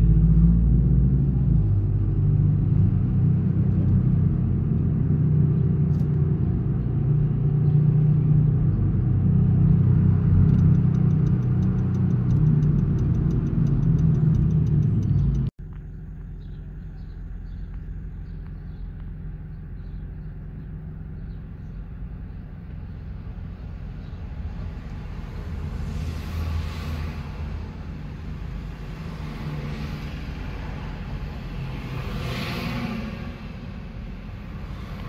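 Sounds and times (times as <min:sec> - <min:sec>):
engine and road rumble: 0:00.0 - 0:35.0
vehicles passing: 0:00.0 - 0:35.0.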